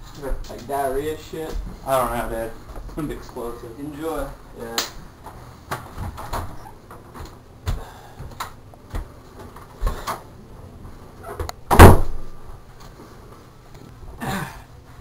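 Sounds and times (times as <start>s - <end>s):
door shutting with thud: 11.4s - 12.2s.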